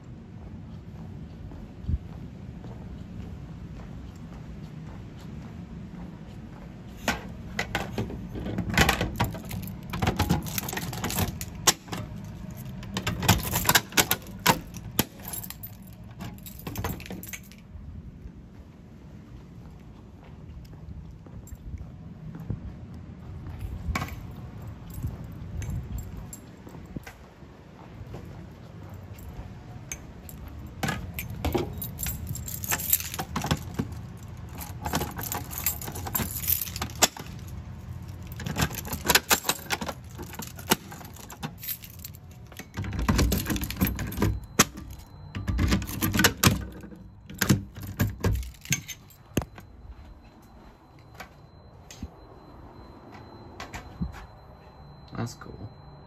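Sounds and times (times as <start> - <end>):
keys jangling: 7.8 - 17.7, 23.4 - 27.2, 28.8 - 49.8
faint high tone: 49.6 - 56.0.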